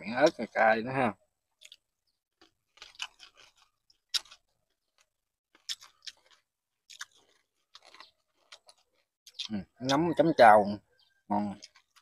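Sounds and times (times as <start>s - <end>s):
person chewing food: 1.6s - 9.7s, 11.5s - 12.0s.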